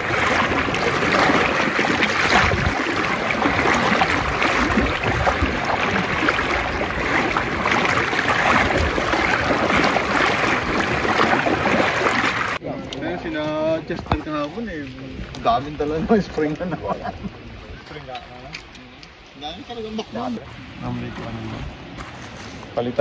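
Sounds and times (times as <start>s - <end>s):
river water rushing: 0.0s - 12.6s.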